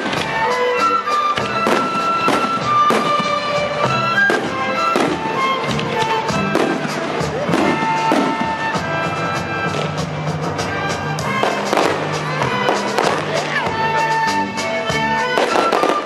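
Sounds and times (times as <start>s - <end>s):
firework shells bursting: 0.0s - 8.9s, 10.6s - 13.6s, 15.2s - 16.0s
music with long held notes: 0.0s - 16.0s.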